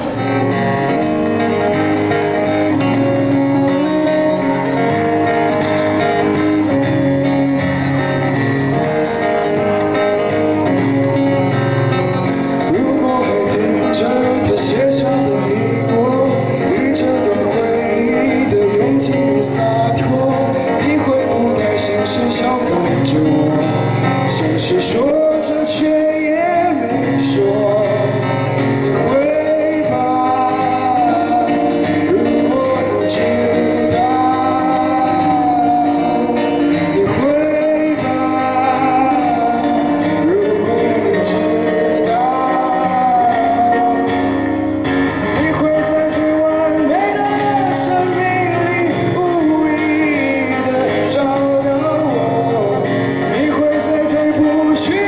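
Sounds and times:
acoustic guitar: 0.0s - 55.0s
man singing slow song: 12.1s - 55.0s.

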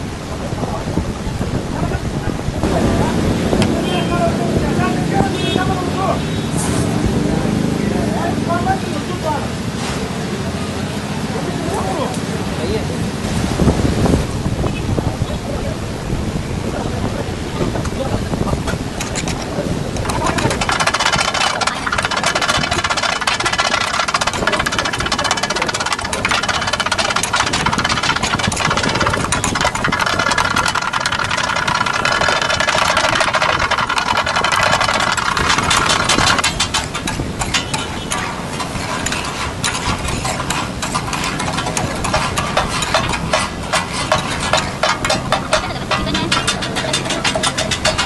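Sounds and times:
steel spatulas clattering on griddle: 18.7s - 48.0s.

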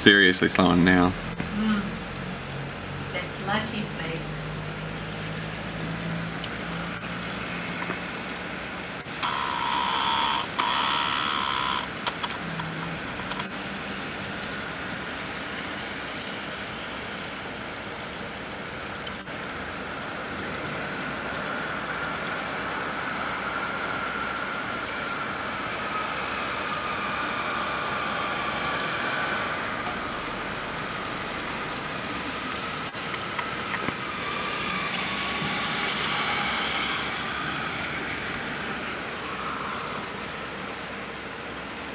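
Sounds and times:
wet snow falling: 0.1s - 41.9s
loud tone-like sound: 9.2s - 13.2s, 19.2s - 41.7s.

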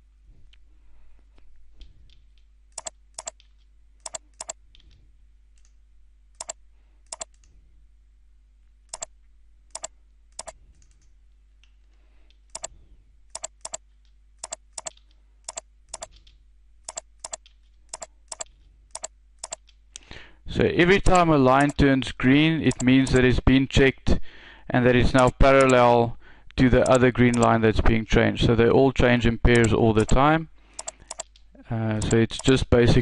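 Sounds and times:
faint low hum: 0.0s - 33.0s
computer mouse clicks: 1.8s - 5.0s, 6.4s - 7.5s, 8.9s - 9.1s, 9.7s - 11.1s, 12.3s - 12.7s, 13.3s - 13.8s, 14.4s - 19.8s, 21.0s - 21.8s, 22.7s - 23.3s, 25.6s - 25.8s, 26.8s - 27.5s, 29.5s - 30.2s, 30.8s - 31.4s, 32.0s - 32.6s.

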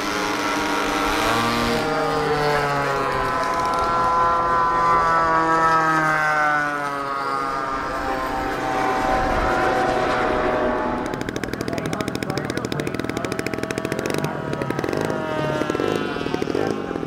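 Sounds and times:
model jet flying past: 0.0s - 17.0s.

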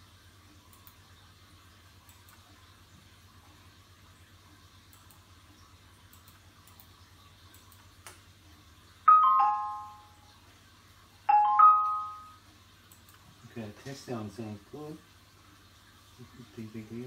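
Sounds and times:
three-note chime: 9.1s - 10.2s, 11.3s - 12.4s.

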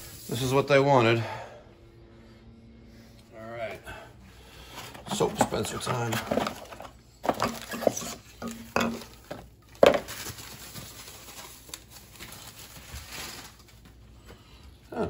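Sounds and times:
cardboard rustling: 4.7s - 14.0s
box and bottle knocks and clatters: 4.9s - 10.2s.

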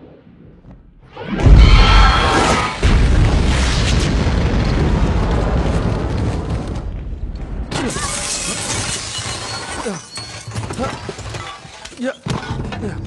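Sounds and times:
deep explosion boom: 1.2s - 7.7s.

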